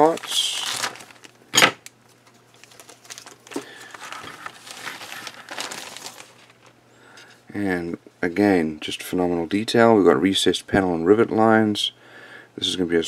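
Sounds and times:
plastic bag crinkling: 0.0s - 6.8s.

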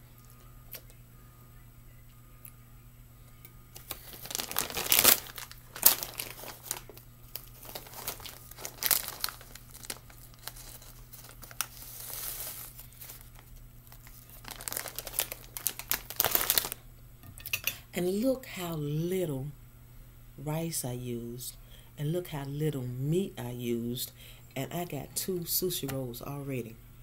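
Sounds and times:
plastic packaging crinkling: 3.8s - 16.8s.

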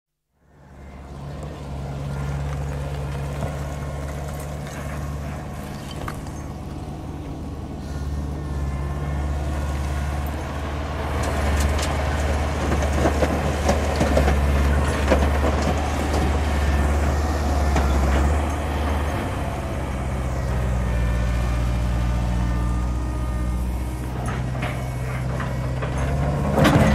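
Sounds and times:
digger engine humming: 0.4s - 26.9s
metallic clanking and rattling: 24.0s - 26.9s.

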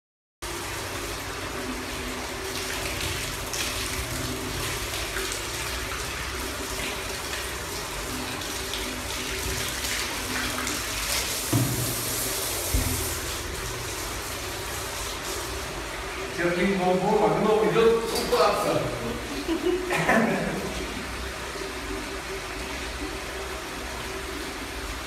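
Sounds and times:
hose water splashing on fur: 0.4s - 25.0s
brief thump: 11.5s - 12.0s.

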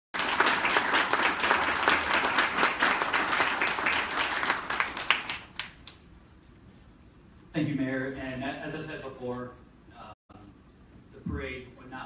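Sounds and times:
audience applauding: 0.2s - 5.9s.

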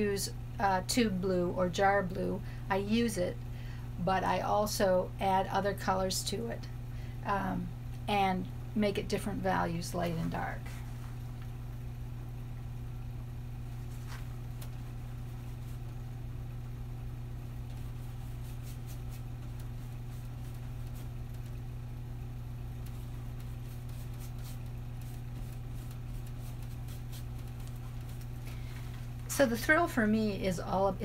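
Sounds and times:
low hum: 0.0s - 31.0s
paintbrush scratching canvas: 17.6s - 21.6s, 22.8s - 28.7s.

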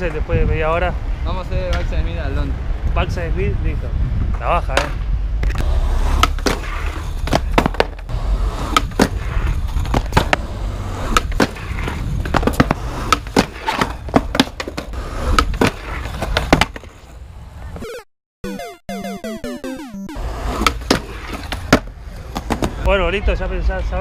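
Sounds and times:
skateboard wheels and deck clacking: 4.7s - 17.2s, 20.2s - 22.9s
skateboard rolling on concrete: 4.7s - 17.8s, 20.2s - 22.9s
skater falling: 5.8s - 17.8s, 20.2s - 22.9s.

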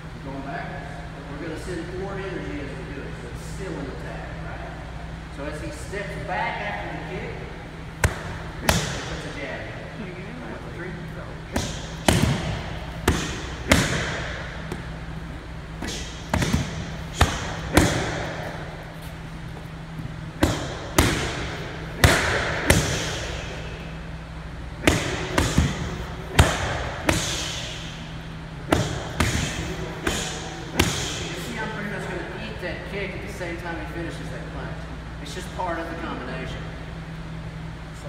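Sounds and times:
punches slapping focus mitts: 8.0s - 9.3s, 11.5s - 14.9s, 15.8s - 18.6s, 20.4s - 23.5s, 24.8s - 27.8s, 28.7s - 31.4s.

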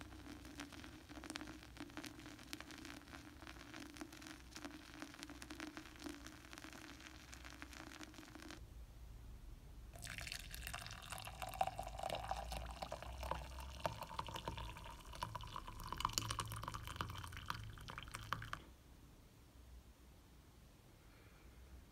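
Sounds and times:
coffee pouring into mug: 0.0s - 8.6s, 10.0s - 18.7s.

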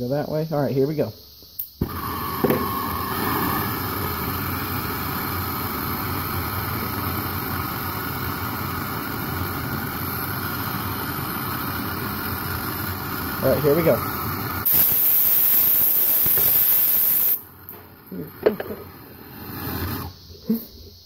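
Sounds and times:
blowtorch flame roaring: 1.8s - 20.6s.

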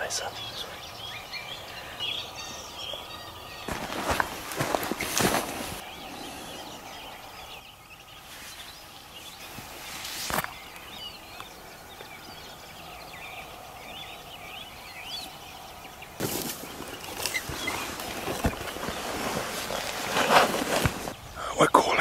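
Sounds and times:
faint outdoor hiss: 0.0s - 22.0s
small birds chirping: 0.0s - 22.0s
clothing and gear rustling: 3.6s - 5.8s, 8.2s - 10.7s, 16.2s - 21.2s.

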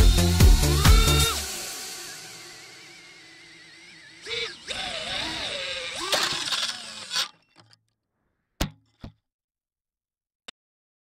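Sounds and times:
quadcopter motors whining: 0.0s - 7.8s.

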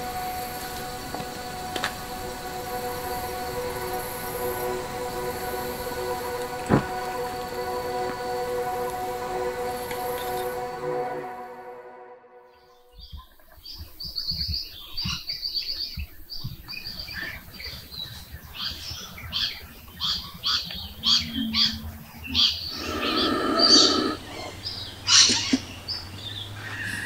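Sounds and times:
birds trilling and chirping: 12.5s - 27.0s
harsh bird call: 20.0s - 25.7s.

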